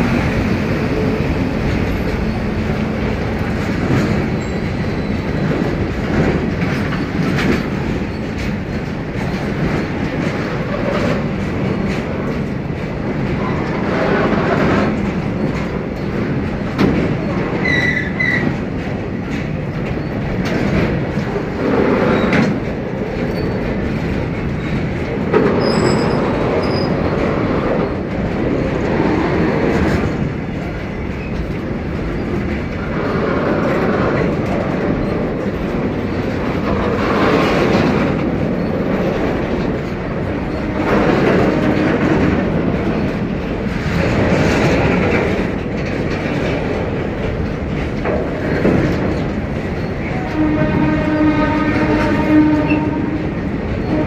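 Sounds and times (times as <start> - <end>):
freight train rumbling past: 0.0 - 54.0
train wheel clatter: 0.0 - 54.0
high wheel squeals: 4.4 - 5.4, 17.6 - 18.4.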